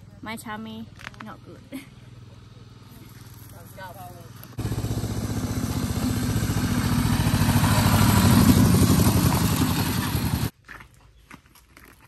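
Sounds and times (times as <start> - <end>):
diesel engine chugging: 4.2 - 10.5.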